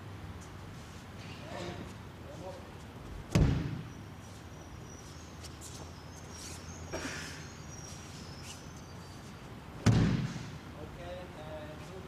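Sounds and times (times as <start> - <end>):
bare feet moving on a mat: 0.4 - 6.8.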